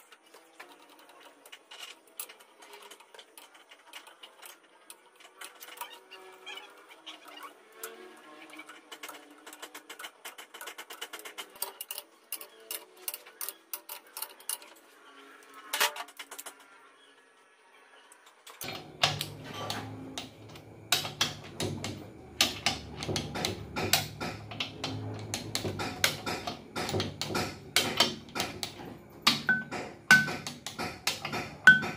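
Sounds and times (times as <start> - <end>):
background music with low beat: 18.6 - 31.9
tools clinking: 18.6 - 31.9.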